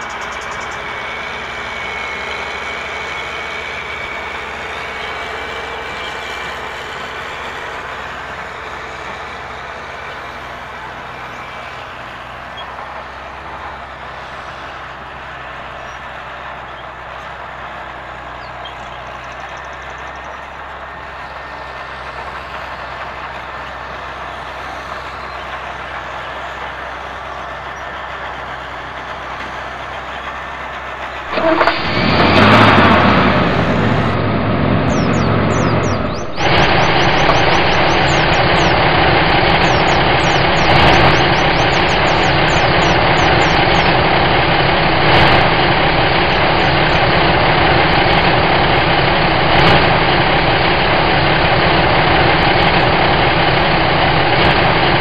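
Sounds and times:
faint high whine: 31.3 - 55.0.

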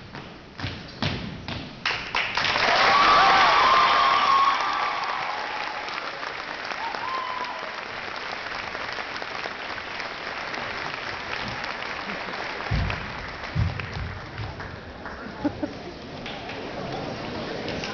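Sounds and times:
crowd applauding: 2.1 - 17.9
dull low thumps: 12.7 - 14.6.

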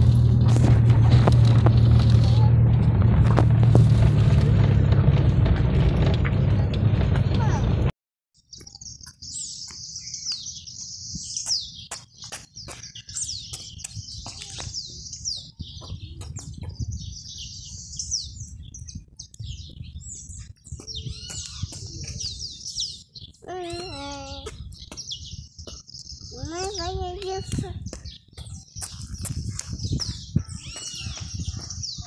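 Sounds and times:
low rumble: 0.0 - 7.9
small birds chirping: 8.4 - 32.0.

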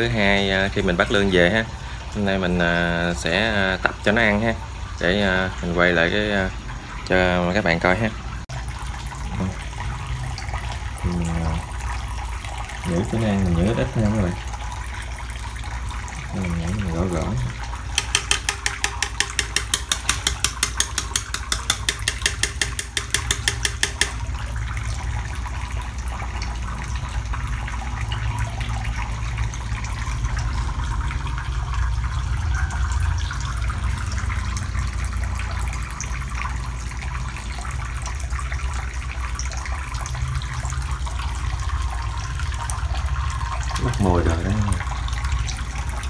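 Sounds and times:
running water: 0.0 - 46.0
rapid even tapping: 17.9 - 24.3.

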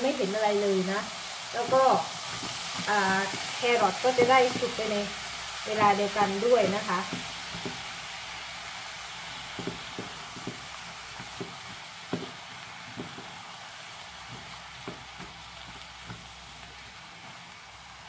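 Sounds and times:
vegetables sizzling in oil: 0.0 - 18.0
spatula knocking on pan: 1.6 - 5.1, 5.7 - 7.9, 9.5 - 13.4, 14.3 - 16.3.

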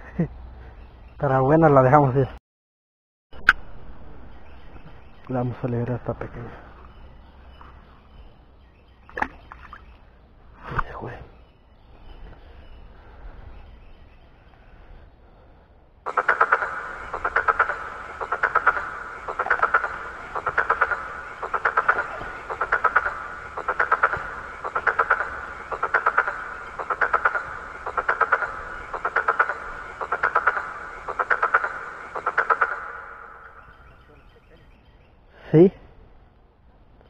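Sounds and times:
frog rattling croak: 16.1 - 34.0.

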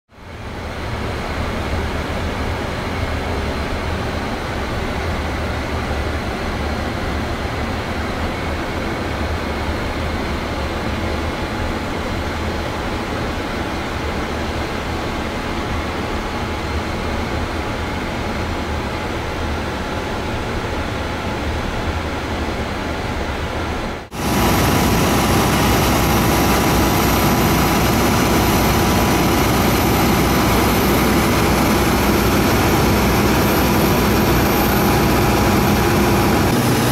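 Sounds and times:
aircraft high whine: 0.2 - 36.9
aircraft low rumble: 24.1 - 36.9.

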